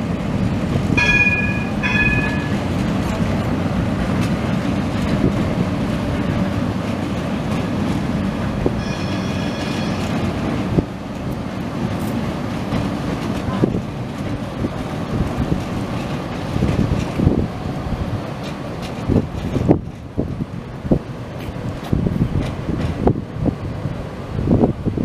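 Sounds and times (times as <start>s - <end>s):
train rumbling over bridge: 0.0s - 25.0s
short high tones: 1.0s - 2.6s, 8.8s - 10.2s
faint high squeal: 8.8s - 10.2s.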